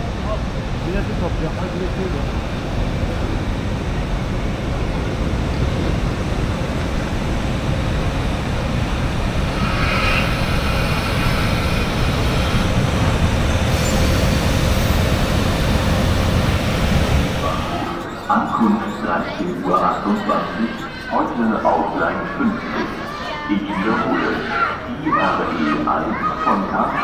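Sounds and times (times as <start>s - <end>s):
train rumbling past: 0.0s - 19.4s
wheels squealing: 8.8s - 21.4s.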